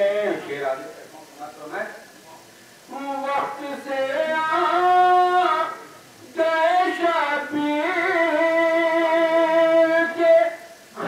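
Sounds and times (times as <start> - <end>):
man singing devotional verse: 0.0 - 0.5, 2.9 - 11.0.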